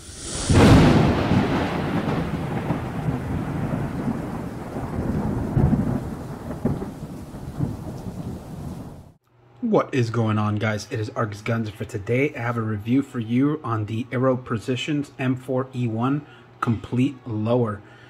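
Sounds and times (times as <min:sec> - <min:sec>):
rain-like hiss: 0:00.0 - 0:09.2
thunder clap and rumble: 0:00.0 - 0:09.2.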